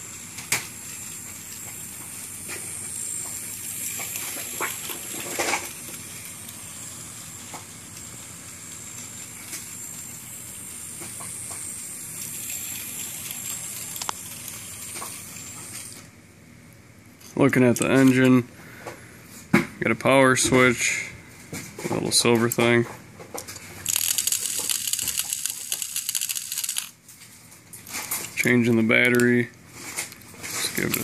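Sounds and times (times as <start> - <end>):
toy train motor whirring: 0.0 - 16.1, 17.2 - 18.3, 23.6 - 27.0, 27.8 - 29.3, 30.0 - 31.0.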